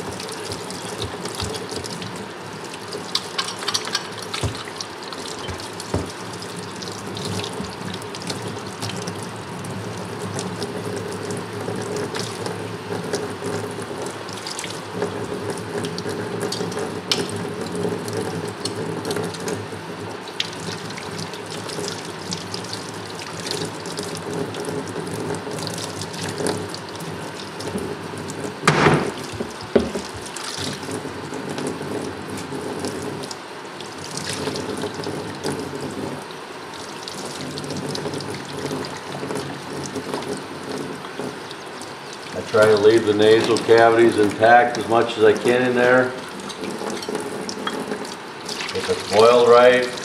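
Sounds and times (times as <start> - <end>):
tap water running into sink: 0.0 - 50.0
loud knocks: 28.6 - 30.1.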